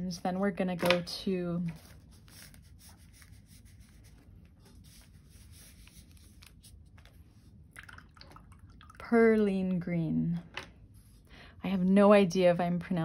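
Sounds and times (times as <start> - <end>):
low room hum: 0.0 - 13.0
brush dabbing on paper: 1.7 - 7.7.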